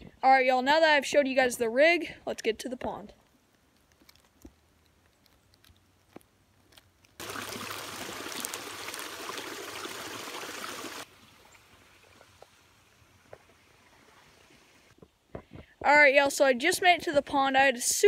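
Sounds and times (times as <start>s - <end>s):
stream trickling: 7.2s - 15.0s.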